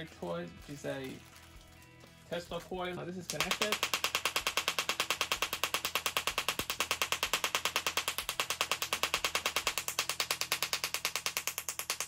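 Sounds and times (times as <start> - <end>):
tesla coil crackling buzz: 3.3 - 12.0.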